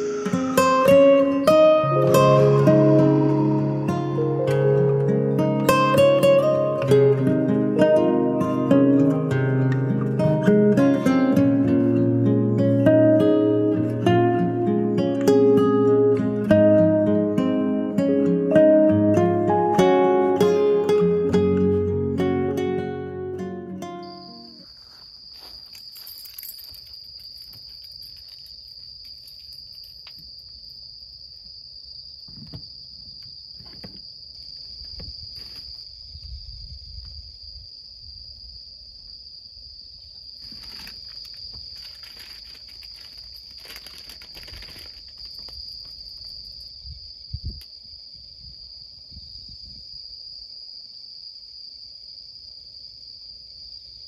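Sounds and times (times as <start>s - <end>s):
insect trilling: 0.0s - 11.2s, 40.0s - 47.7s.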